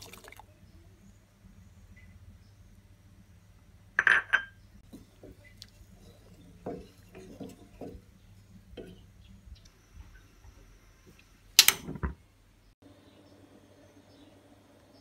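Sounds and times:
metal saucepan clattering: 0:04.0 - 0:09.2
wooden spatula knocking pot: 0:04.8 - 0:09.2.

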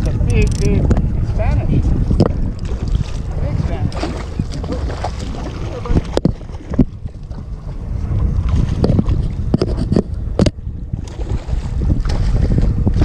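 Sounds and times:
wind buffeting microphone: 0:00.0 - 0:13.0
sharp knocks and clicks: 0:08.8 - 0:10.6.

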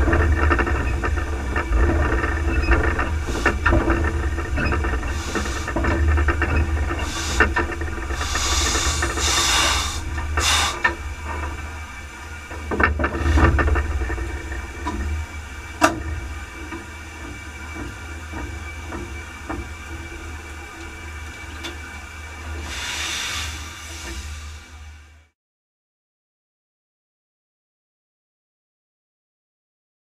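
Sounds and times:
low rumble: 0:00.0 - 0:25.3
steam hissing: 0:03.1 - 0:03.7, 0:05.0 - 0:05.9, 0:06.8 - 0:12.4, 0:22.4 - 0:25.2.

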